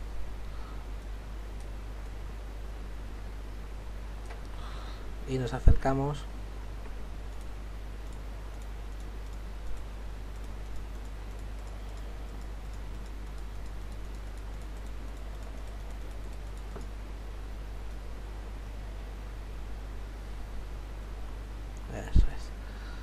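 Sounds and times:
low electrical hum and hiss: 0.0s - 23.0s
computer mouse clicks: 1.0s - 2.2s, 6.8s - 17.0s.

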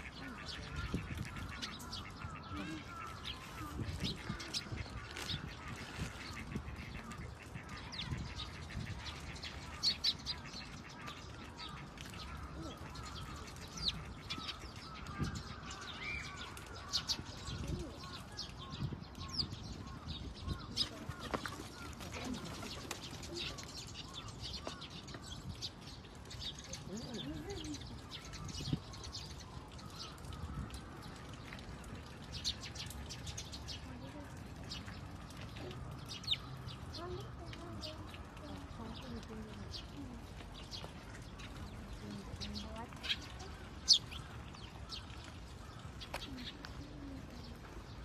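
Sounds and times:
birds chirping: 0.0s - 48.0s.

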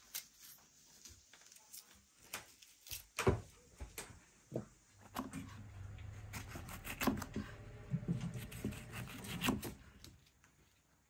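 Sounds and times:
knife slicing pepper: 6.2s - 10.3s.

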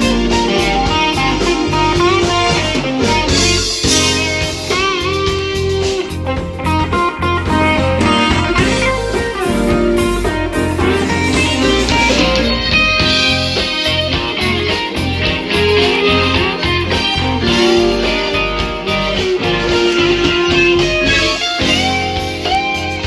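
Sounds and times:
electric guitar: 0.0s - 23.0s
live band playing: 0.0s - 23.0s.

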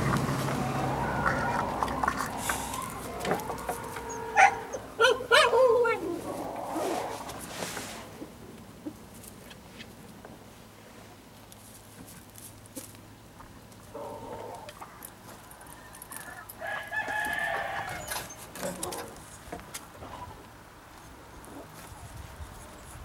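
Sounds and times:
animal calls with held pitch: 0.0s - 7.4s.

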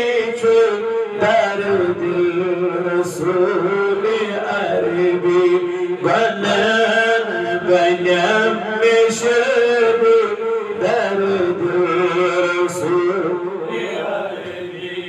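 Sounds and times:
man chanting devotional recitation: 0.0s - 15.0s.

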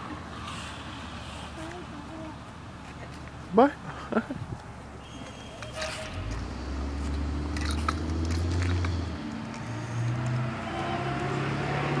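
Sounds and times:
vehicle engine humming: 0.0s - 12.0s
bike wheels clicking and rattling: 7.5s - 10.3s.

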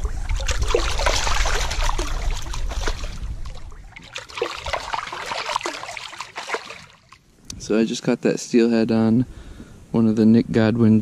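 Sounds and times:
shallow river water splashing: 0.0s - 7.4s.

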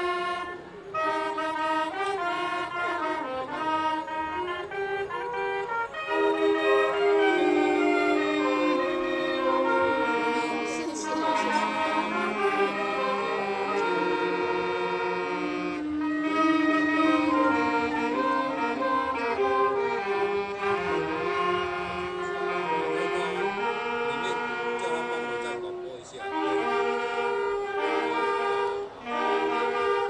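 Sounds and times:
saxophone ensemble playing: 0.0s - 30.0s.

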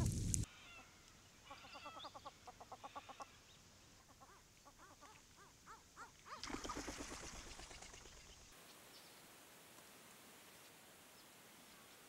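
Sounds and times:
water splash: 6.4s - 8.3s.

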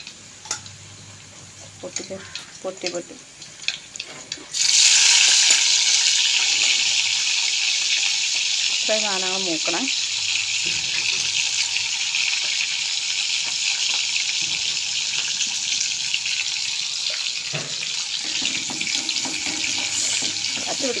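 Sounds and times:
vegetables sizzling in hot oil: 0.0s - 21.0s
wooden spatula stirring: 18.3s - 21.0s.

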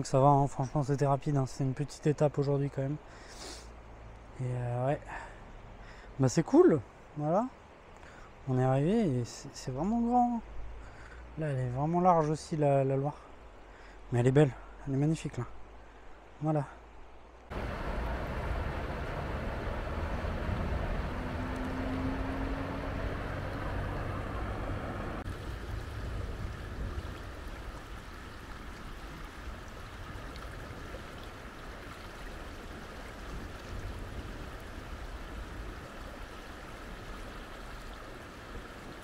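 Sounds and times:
outdoor rushing noise: 17.5s - 26.2s
deep rumble: 17.5s - 27.3s.

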